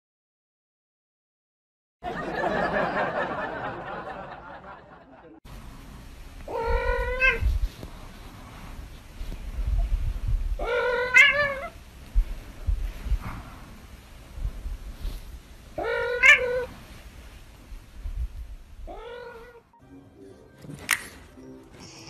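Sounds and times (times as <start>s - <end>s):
cat meowing: 6.5s - 7.5s, 10.6s - 11.8s, 15.8s - 16.7s, 18.8s - 19.7s.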